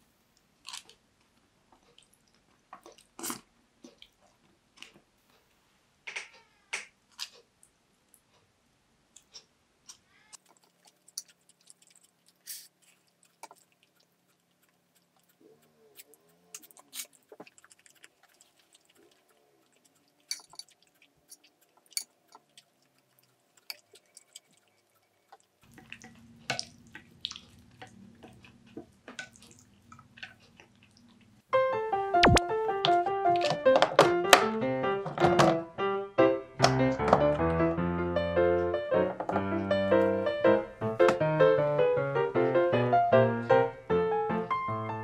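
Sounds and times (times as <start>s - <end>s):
soft keyboard music: 31.6s - 45.0s.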